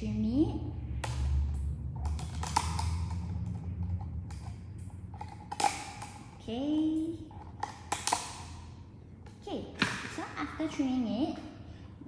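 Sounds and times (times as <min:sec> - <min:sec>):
low rumble: 0:00.0 - 0:07.6.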